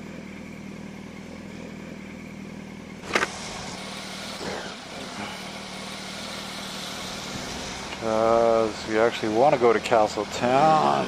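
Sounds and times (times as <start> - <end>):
motorcycle engine running: 0.0 - 11.0
wind and road noise: 3.0 - 10.1.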